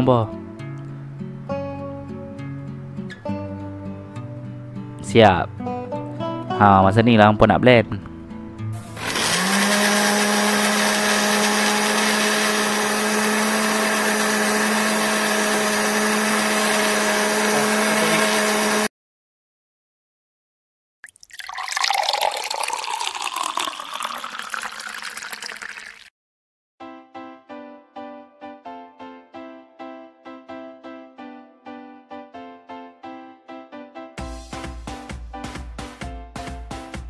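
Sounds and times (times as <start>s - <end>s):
electric blender running: 8.8s - 18.9s, 22.0s - 26.1s
liquid pouring into glass of ice: 21.0s - 26.1s.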